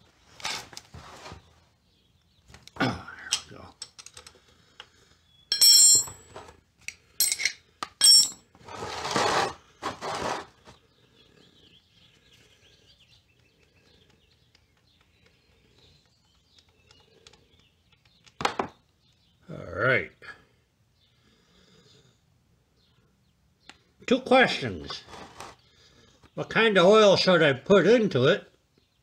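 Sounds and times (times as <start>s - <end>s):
drain pan scraping across concrete: 8.6s - 10.6s.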